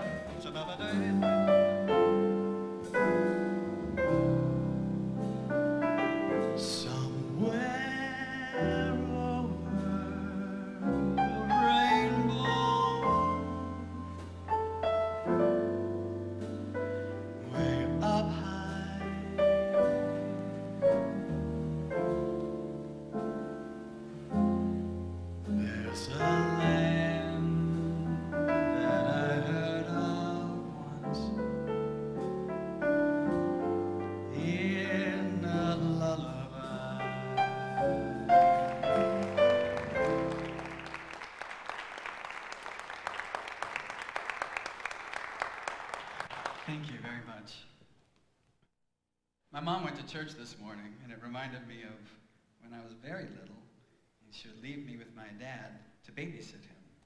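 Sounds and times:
piano and upright bass ballad: 0.0s - 46.8s
man singing: 0.3s - 1.6s, 6.5s - 14.4s, 17.4s - 20.8s, 25.5s - 31.5s, 34.3s - 39.2s
audience applause: 38.4s - 47.0s.

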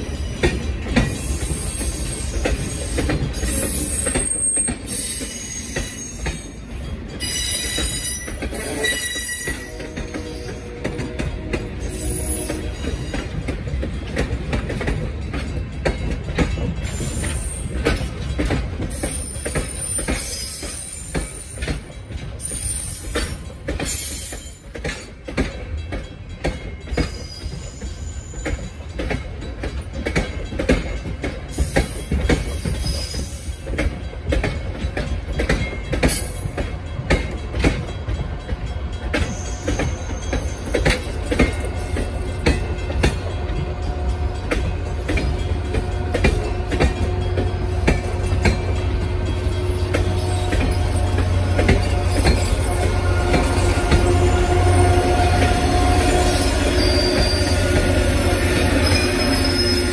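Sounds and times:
train rumble: 0.0s - 59.9s
high wheel squeals: 7.2s - 10.8s, 18.9s - 21.6s, 49.6s - 59.9s.

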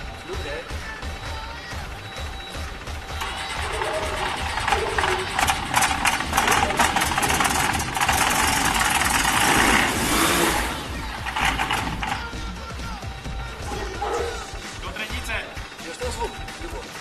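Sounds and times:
aircraft engine starting: 2.0s - 12.8s.

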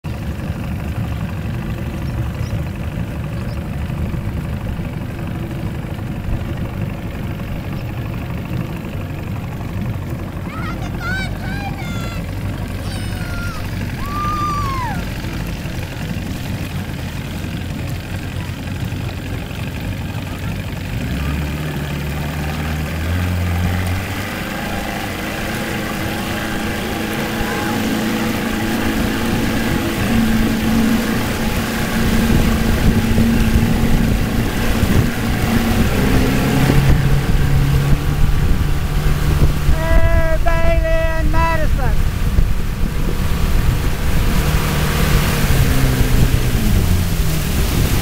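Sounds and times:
motorboat engine running: 0.0s - 48.0s.

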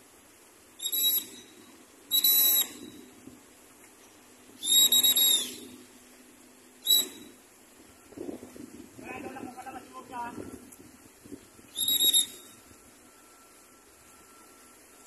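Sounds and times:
hand whistle blasts: 0.8s - 3.1s, 4.6s - 5.8s, 6.8s - 7.4s, 11.7s - 14.6s.

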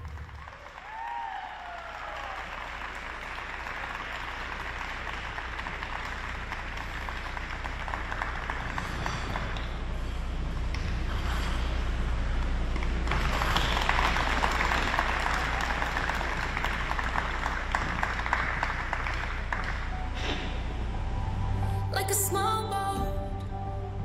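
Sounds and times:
audience applauding: 0.0s - 10.1s, 12.8s - 20.0s.

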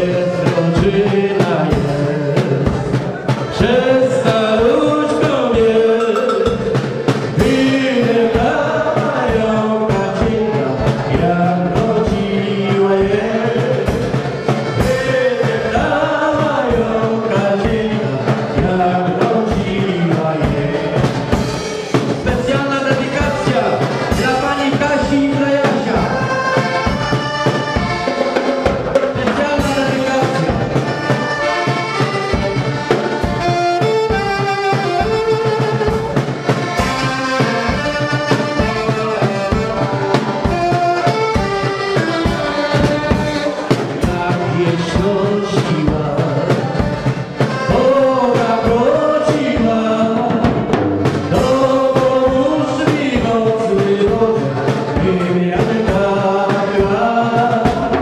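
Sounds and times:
folk band playing: 0.0s - 58.0s
saxophone melody: 30.0s - 44.1s.

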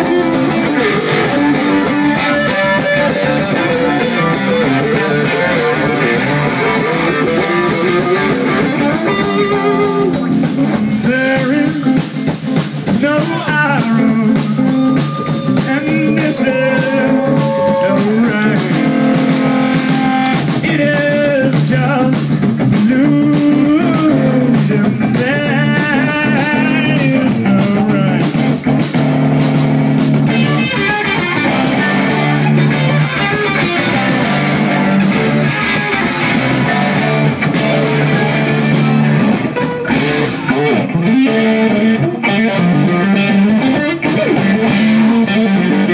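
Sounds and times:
bending electric guitar lead: 0.0s - 45.9s
rock band playing loudly: 0.0s - 45.9s.

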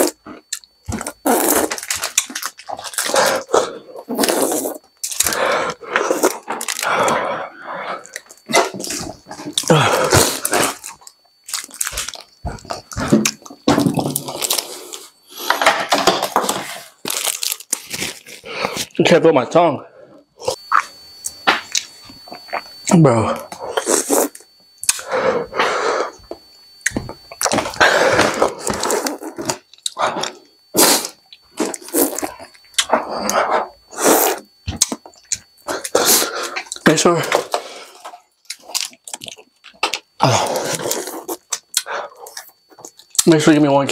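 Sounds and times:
man panting heavily: 5.2s - 8.2s, 9.6s - 10.6s, 27.6s - 28.8s
man groaning: 9.6s - 10.4s, 40.2s - 40.8s
man's sharp hissing breaths: 25.0s - 26.3s, 35.6s - 36.7s.

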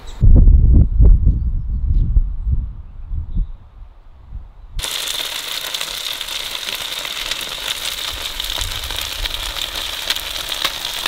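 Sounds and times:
skewers sizzling with crackles: 4.8s - 11.0s.

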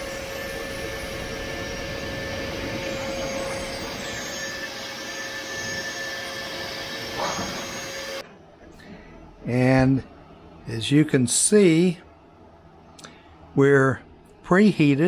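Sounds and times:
vacuum blower whining: 0.0s - 8.2s.

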